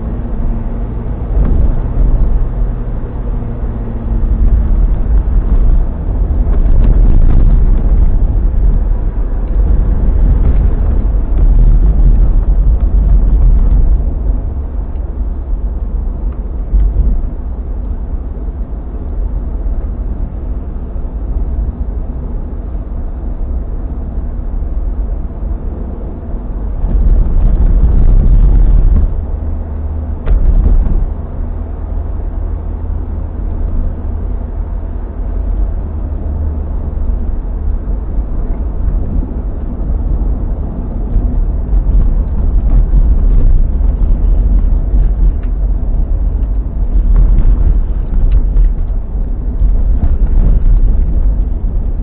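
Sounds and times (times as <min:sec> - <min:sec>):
car engine and tyres rumbling: 0:00.0 - 0:52.0.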